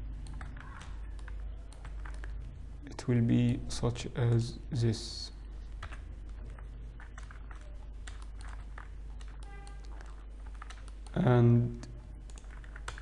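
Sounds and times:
low electrical hum: 0.0s - 13.0s
computer keyboard clicks: 0.2s - 2.4s, 5.7s - 11.2s, 11.8s - 13.0s.

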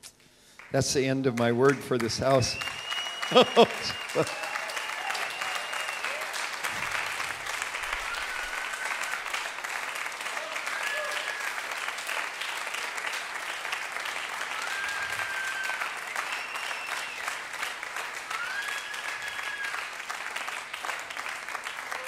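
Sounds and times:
congregation clapping: 0.0s - 22.0s
high-pitched calls from crowd: 2.6s - 6.4s, 7.8s - 9.4s, 10.3s - 11.7s, 14.5s - 17.2s, 18.3s - 19.8s.

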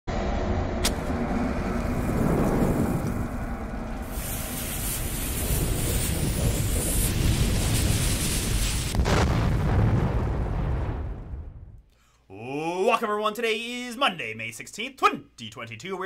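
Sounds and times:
low rumble: 0.1s - 11.9s
sharp click: 0.8s - 1.1s
burning fuse hissing and crackling: 1.6s - 9.7s.

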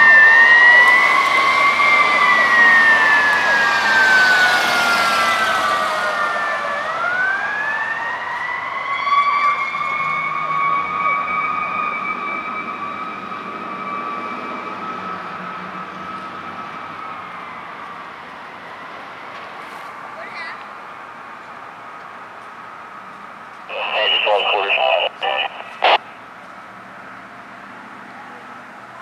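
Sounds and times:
fire engine siren wailing: 0.0s - 19.4s.

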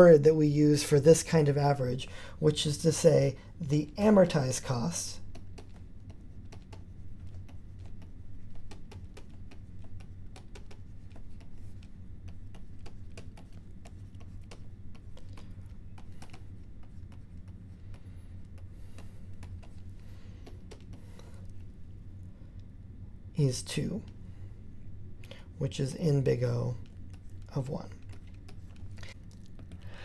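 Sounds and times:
steady low hum: 0.0s - 30.0s
stylus tapping on tablet screen: 5.3s - 18.0s.

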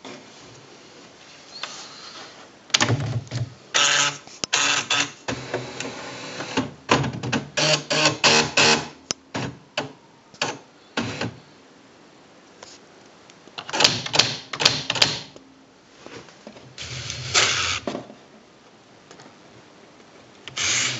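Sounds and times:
typewriter whirring and clicking: 3.8s - 9.5s, 13.6s - 15.3s, 20.5s - 20.9s.

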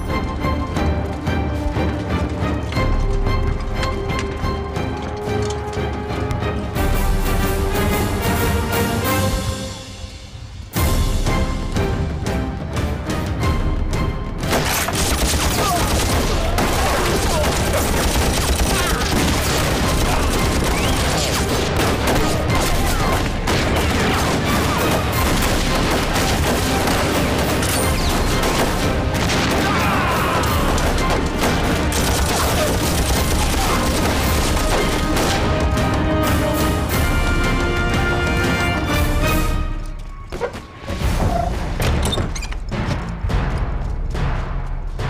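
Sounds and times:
dramatic score music: 0.0s - 45.0s
dense gunfire: 14.4s - 35.8s.

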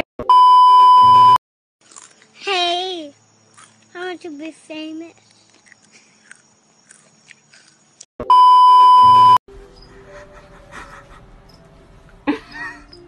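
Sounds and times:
censor bleep: 0.2s - 1.4s, 8.2s - 9.4s.

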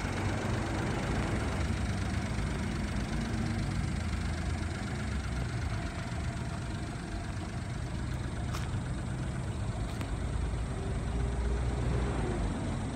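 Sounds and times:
small truck engine idling: 0.0s - 12.9s.

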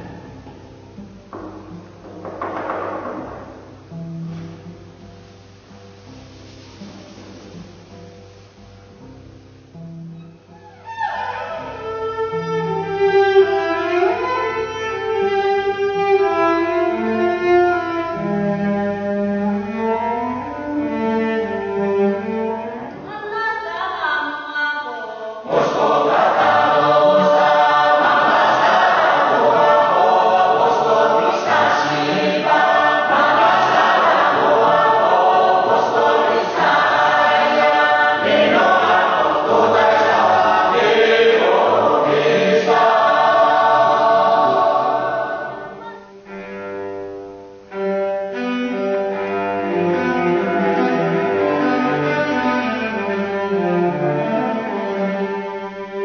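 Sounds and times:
chorus singing together: 0.0s - 0.6s, 25.0s - 45.8s
cello bowing: 0.0s - 23.8s, 25.5s - 56.0s.

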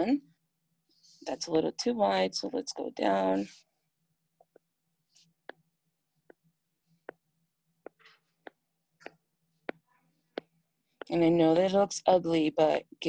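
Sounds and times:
stylus tapping on glass screen: 7.8s - 11.1s.

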